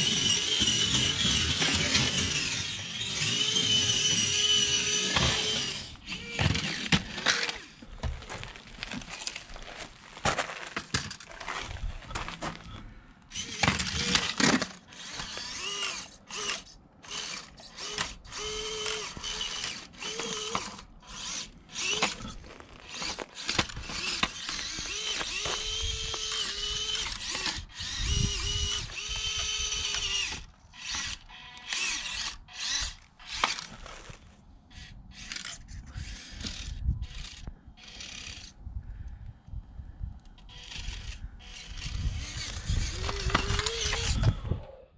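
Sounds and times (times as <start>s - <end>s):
small electric motor whining: 0.0s - 7.9s, 13.3s - 38.6s, 40.4s - 44.8s
tyres scraping over gravel: 0.0s - 12.8s, 18.4s - 28.0s, 31.7s - 34.4s.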